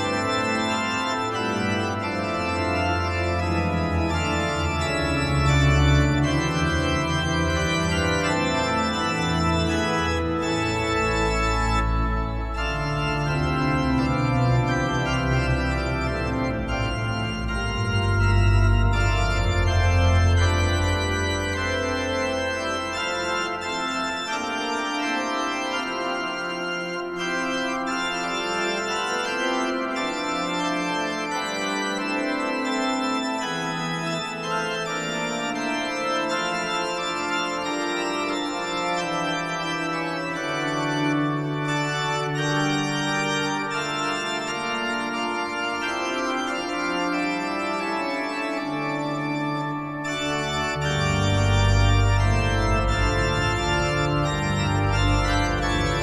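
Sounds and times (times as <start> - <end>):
organ chords: 0.0 - 56.0
deep bass organ notes: 0.1 - 31.2, 48.0 - 56.0.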